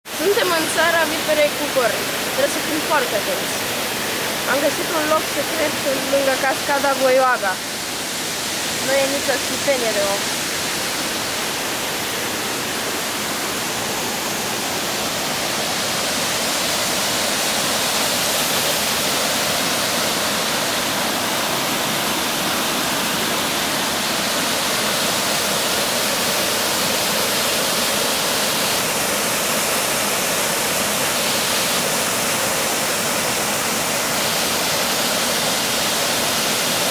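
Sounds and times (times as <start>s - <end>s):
waterfall rushing into a pool: 0.0s - 36.9s.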